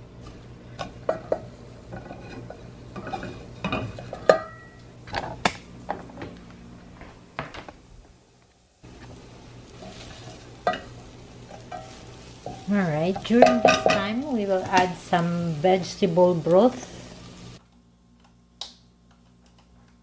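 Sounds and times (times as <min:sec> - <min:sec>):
wooden spoon stirring in a pot: 0:00.8 - 0:04.5, 0:08.9 - 0:16.0.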